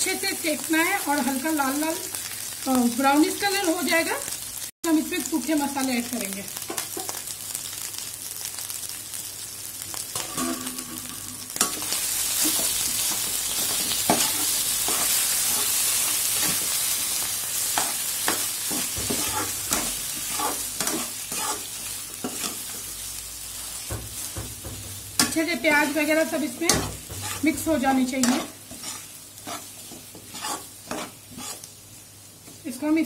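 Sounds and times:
potatoes sizzling in hot oil: 0.0s - 33.0s
spoon scraping and tapping pan: 28.2s - 31.6s.

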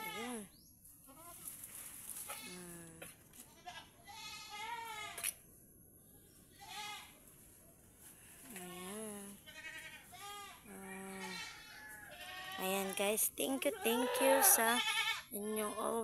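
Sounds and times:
goats bleating: 8.6s - 13.0s, 13.6s - 16.0s.

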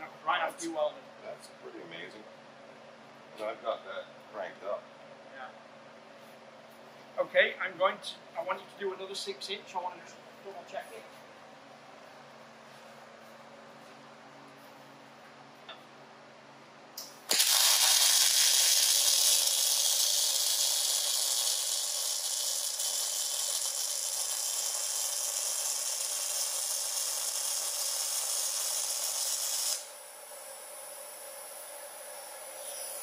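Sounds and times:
welding arc striking click: 17.0s - 29.9s
welding arc sizzling: 17.0s - 33.0s.

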